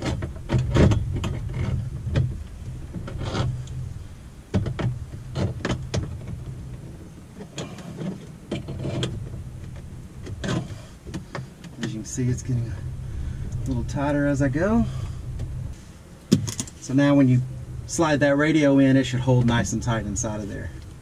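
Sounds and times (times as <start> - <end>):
hand-handling noise: 4.5 - 21.0.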